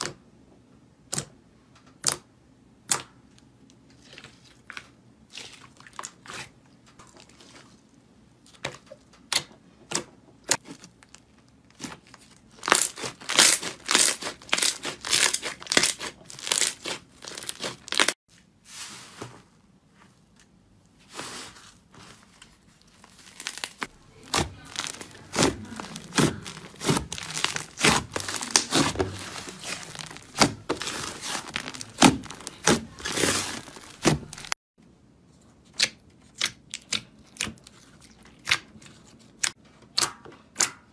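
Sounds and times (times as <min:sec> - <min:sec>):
slime popping and crackling: 0:12.5 - 0:18.1, 0:23.1 - 0:34.6.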